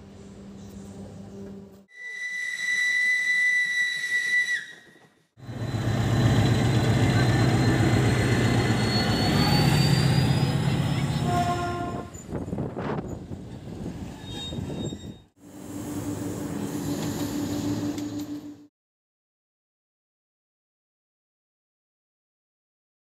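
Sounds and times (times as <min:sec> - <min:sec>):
steam locomotive whistle: 0:01.9 - 0:05.9, 0:07.2 - 0:10.6, 0:11.2 - 0:12.2
diesel locomotive engine running: 0:05.4 - 0:12.5, 0:15.4 - 0:18.7.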